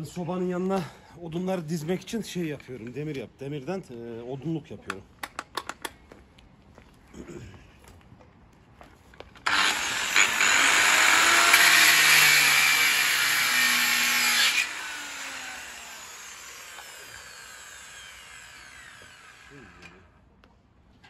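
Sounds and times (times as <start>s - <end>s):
angle grinder cutting iron: 9.4s - 20.1s.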